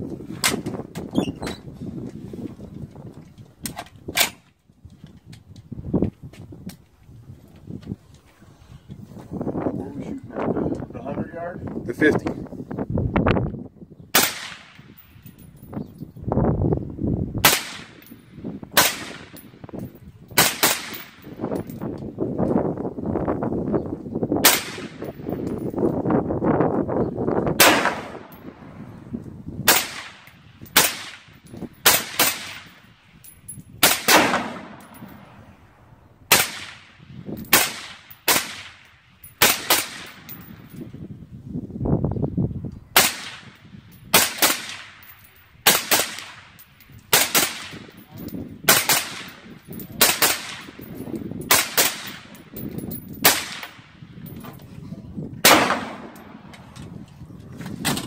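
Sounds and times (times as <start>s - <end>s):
rifle shots: 14.2s - 14.9s, 17.4s - 18.0s, 18.8s - 19.4s, 20.4s - 21.3s, 24.4s - 25.1s, 27.6s - 28.6s, 29.7s - 32.8s, 33.8s - 35.4s, 36.3s - 40.3s, 43.0s - 45.0s, 45.6s - 47.9s, 48.7s - 50.8s, 51.5s - 52.4s, 53.2s - 54.0s, 55.4s - 56.6s.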